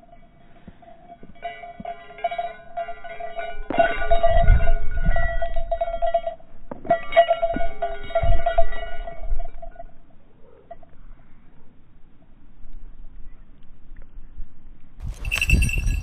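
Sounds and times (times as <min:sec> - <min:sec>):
small bells jingling: 0:00.0 - 0:10.9, 0:15.0 - 0:16.0.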